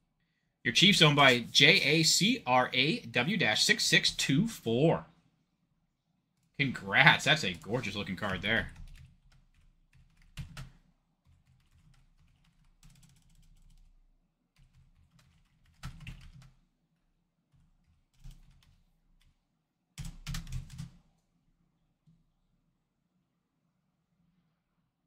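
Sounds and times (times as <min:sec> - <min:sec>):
computer keyboard typing: 0:07.4 - 0:13.9, 0:14.6 - 0:16.6, 0:17.5 - 0:19.3, 0:20.0 - 0:21.0.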